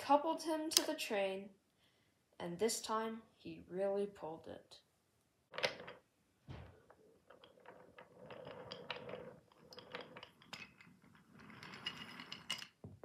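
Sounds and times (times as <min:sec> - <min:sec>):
toy train rolling on wooden track: 0:07.3 - 0:12.8.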